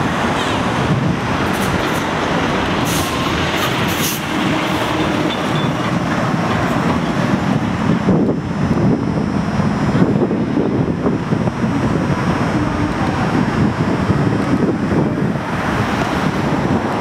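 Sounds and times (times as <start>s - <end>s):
heavy vehicles rumbling past: 0.0s - 17.0s.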